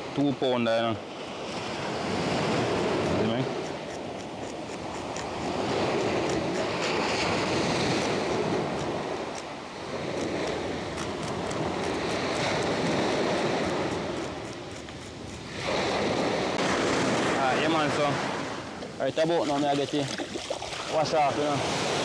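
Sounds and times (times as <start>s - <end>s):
surf on a pebble beach: 0.0s - 22.0s
wind on the microphone: 1.2s - 22.0s
knife scraping fish scales: 2.6s - 9.5s, 10.1s - 15.8s.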